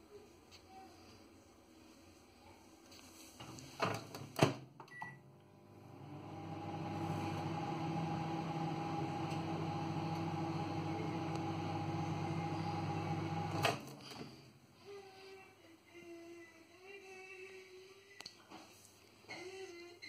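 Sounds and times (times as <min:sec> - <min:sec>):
microwave oven humming: 0:04.9 - 0:14.1.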